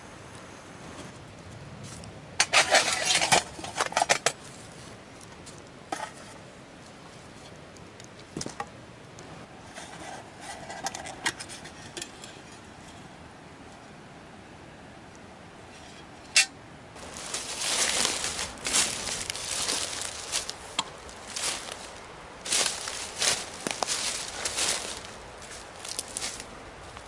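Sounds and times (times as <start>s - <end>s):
metal camp gear clattering: 2.4s - 4.4s, 16.3s - 26.4s.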